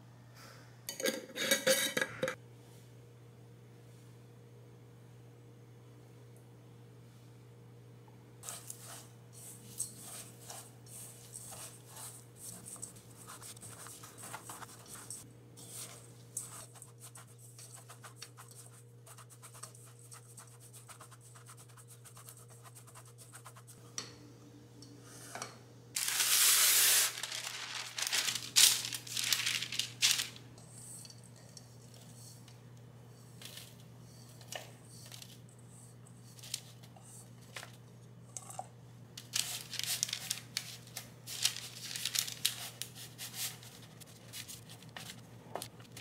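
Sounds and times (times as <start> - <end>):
spatula stirring oats in metal bowl: 8.4 - 20.7
loud rustling and scraping: 26.0 - 30.4.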